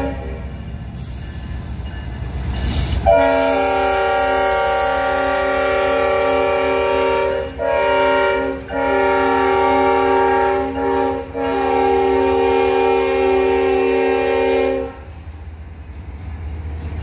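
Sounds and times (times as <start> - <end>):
locomotive air horn: 0.0 - 0.5, 3.0 - 15.1.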